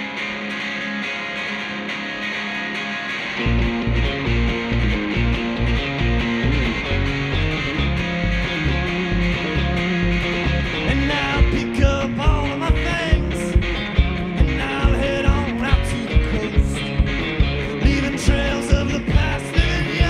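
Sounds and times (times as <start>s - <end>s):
electric guitars: 0.0s - 20.0s
upright bass: 3.4s - 20.0s
man singing: 10.8s - 13.6s, 14.4s - 17.0s, 17.6s - 20.0s
steady beat of sharp hits: 12.7s - 20.0s.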